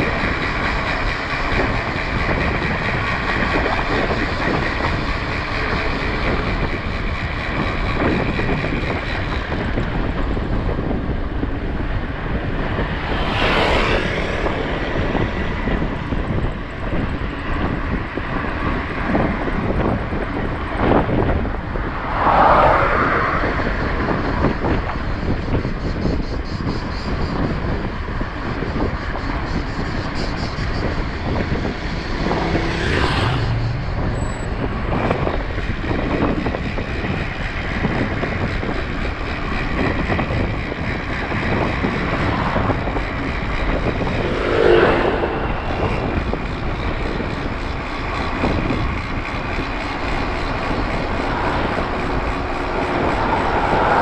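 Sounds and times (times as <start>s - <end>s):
wind rushing on the microphone: 0.0s - 54.0s
bicycle tyre noise: 28.3s - 54.0s.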